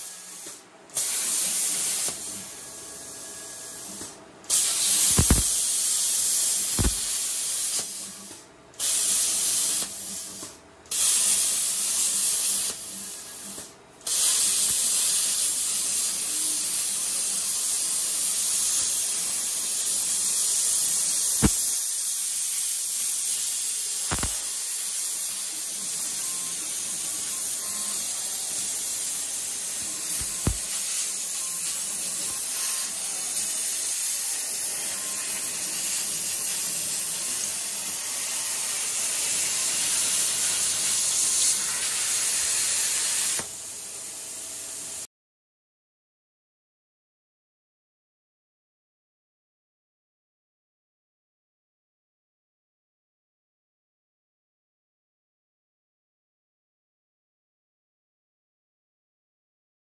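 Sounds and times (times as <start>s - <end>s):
plasma cutter arc hissing: 0.0s - 45.1s.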